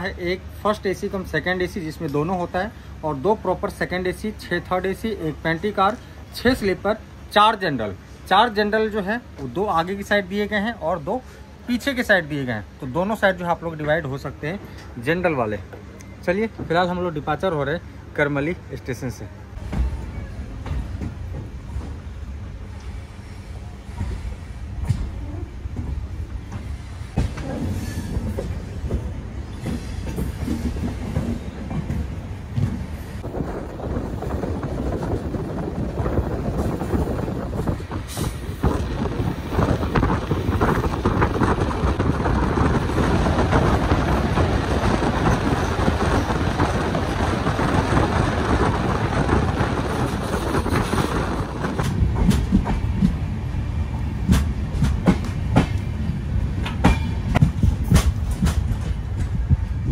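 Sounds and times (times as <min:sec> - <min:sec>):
train rumbling on rails: 0:00.0 - 0:59.9
wheels clickety-clack: 0:34.4 - 0:53.2.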